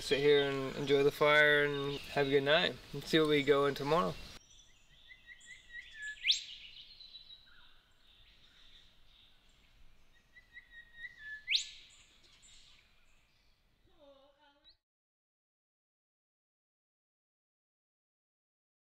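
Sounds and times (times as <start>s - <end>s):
faint high-pitched insect calls: 0.2s - 14.8s.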